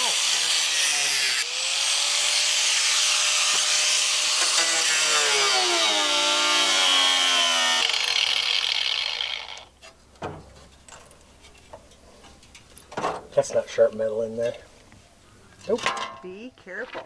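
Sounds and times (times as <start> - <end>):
angle grinder cutting metal: 0.0 - 9.7.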